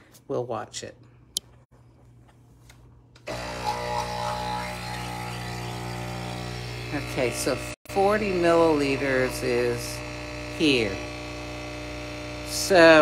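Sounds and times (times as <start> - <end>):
espresso machine pump humming: 3.2 - 13.0.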